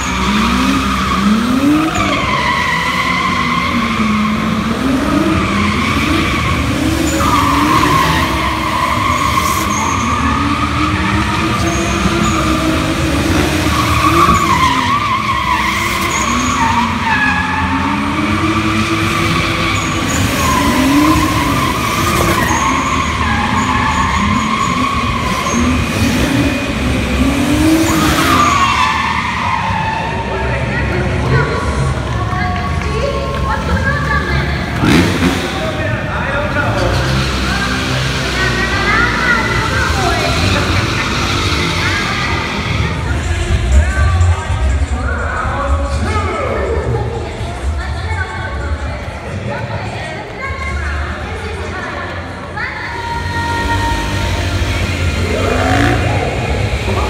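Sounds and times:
tyre squeal: 0.0s - 30.4s
car engines revving: 0.0s - 57.0s.

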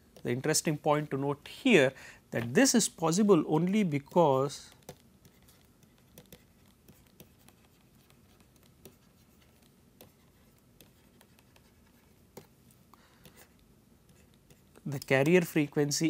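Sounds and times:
stylus tapping on tablet: 4.7s - 12.5s.

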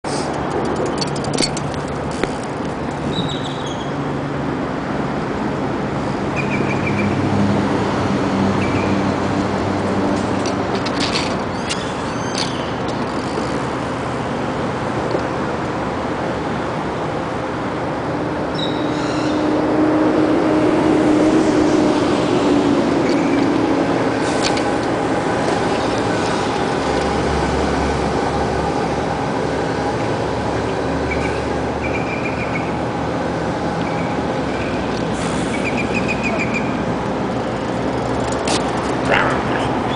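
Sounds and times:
traffic rumble: 0.0s - 39.9s
vehicle passing: 4.3s - 11.3s, 18.0s - 39.9s.

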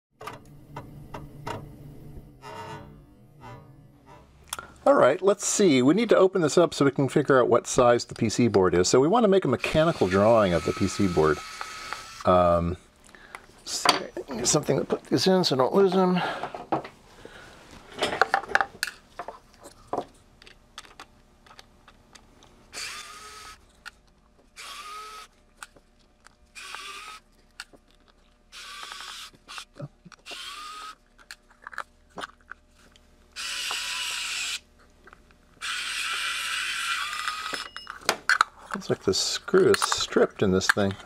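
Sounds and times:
electric screwdriver whining: 9.6s - 12.3s, 22.7s - 23.6s, 24.6s - 25.3s, 26.6s - 27.3s, 28.5s - 31.0s, 33.4s - 34.6s, 35.6s - 37.7s.

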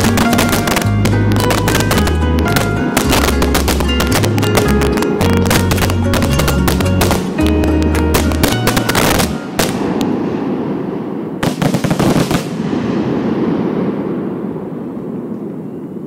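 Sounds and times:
music playing: 0.0s - 10.0s
fireworks bangs and crackling: 0.0s - 16.0s.

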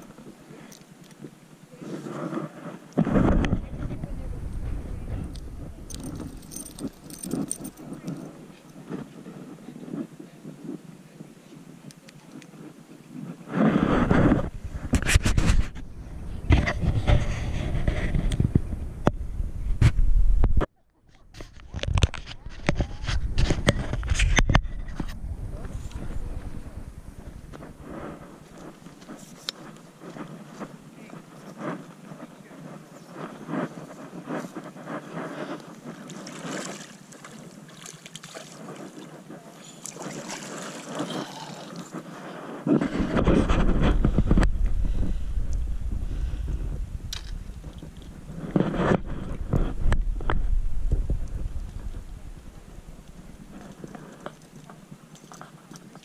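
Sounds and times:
rustling: 0.0s - 10.8s
light wind on microphone: 0.0s - 20.7s, 21.4s - 56.0s
low rumble: 3.3s - 8.0s, 14.4s - 20.6s, 22.8s - 28.9s, 42.9s - 53.6s.

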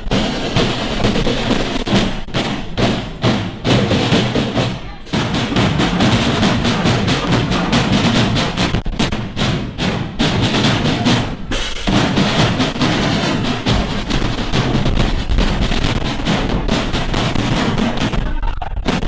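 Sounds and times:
marching drum band playing: 0.0s - 19.0s.

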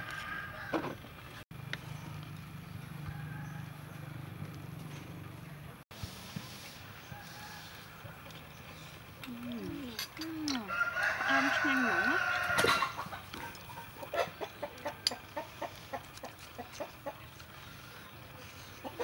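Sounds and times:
rooster crowing: 0.0s - 1.0s, 3.0s - 4.3s, 7.0s - 8.3s, 10.5s - 13.5s.

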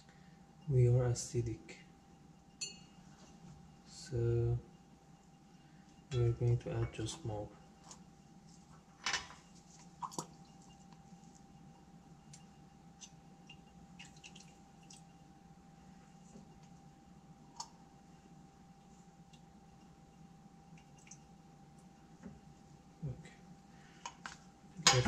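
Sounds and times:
faint steady tone: 0.0s - 25.0s
lab equipment humming: 0.0s - 25.0s
glassware clattering: 2.6s - 2.8s
small glass clinks: 2.6s - 2.9s.

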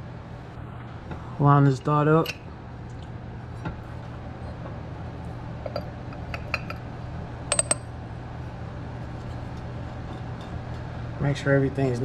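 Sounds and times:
steady low hum: 0.0s - 12.0s
metal parts clinking: 7.5s - 7.8s.

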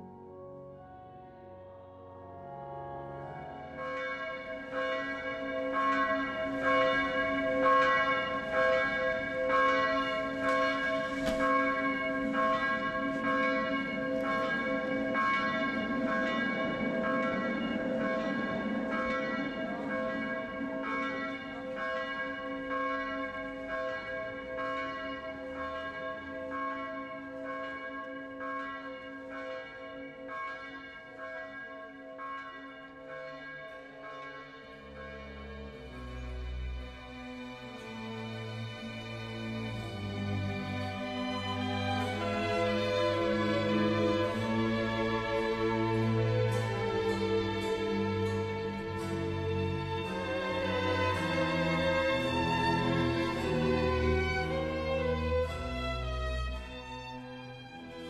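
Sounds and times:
church bell tolling: 0.0s - 58.0s.

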